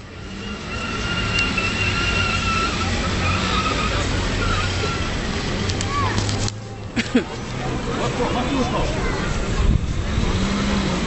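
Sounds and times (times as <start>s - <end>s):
tire squeal: 0.0s - 6.4s
car engine under throttle: 0.0s - 11.0s.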